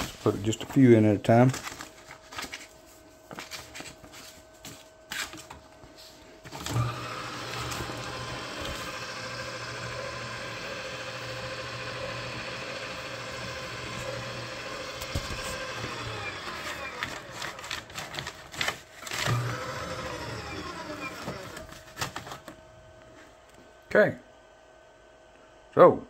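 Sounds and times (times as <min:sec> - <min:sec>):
shredder motor humming: 0:06.4 - 0:18.3, 0:19.0 - 0:22.5
paper loading clicks: 0:13.0 - 0:22.6.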